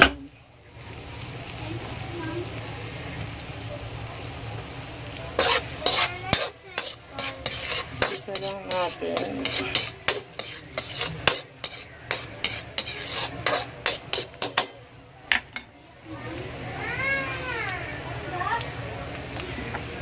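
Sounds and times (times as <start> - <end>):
food sizzling: 0.0 - 20.0
metal ladle scraping a wok: 5.4 - 14.8.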